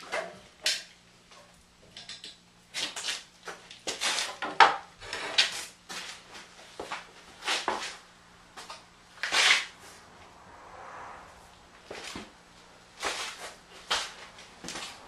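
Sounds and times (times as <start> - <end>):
faint steady hum: 0.0 - 15.0
wooden boards knocking and clattering: 4.0 - 4.9.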